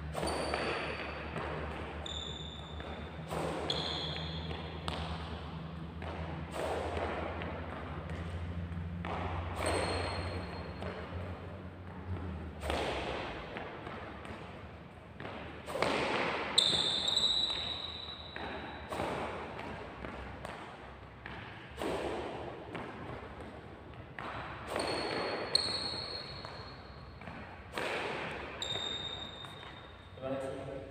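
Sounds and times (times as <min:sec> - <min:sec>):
sharp shoe squeaks: 0:00.0 - 0:05.0, 0:09.5 - 0:11.3, 0:15.6 - 0:19.4, 0:24.6 - 0:30.2.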